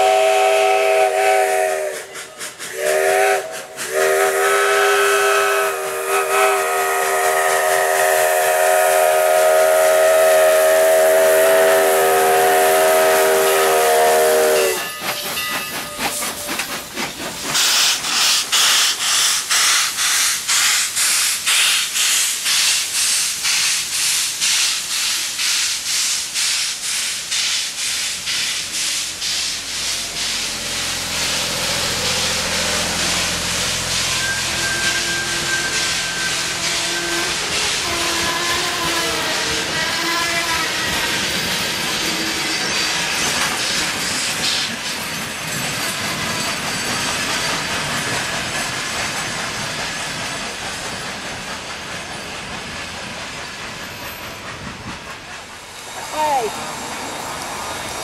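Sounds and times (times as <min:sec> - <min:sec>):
steam whistle blast: 0:00.0 - 0:15.2, 0:29.3 - 0:41.3
steam locomotive chuffing: 0:00.0 - 0:58.0.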